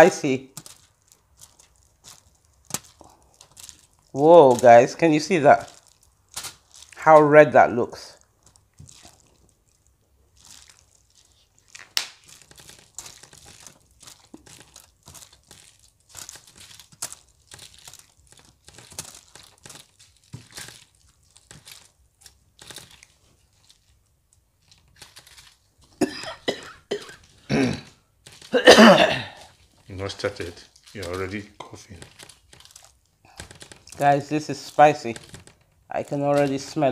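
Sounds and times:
wet squishes of food mixing: 0:00.0 - 0:26.0, 0:27.2 - 0:28.6, 0:29.2 - 0:36.9
foil crinkling: 0:00.0 - 0:36.9
person coughing: 0:26.0 - 0:29.5.

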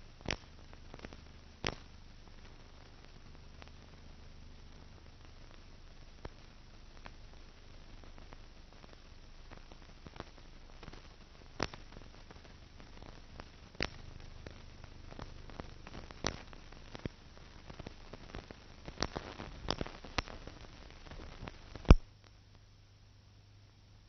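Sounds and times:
faint hiss: 0:00.0 - 0:24.0
faint low hum: 0:00.0 - 0:24.0
film clicks and pops: 0:00.2 - 0:03.9, 0:08.1 - 0:22.4.

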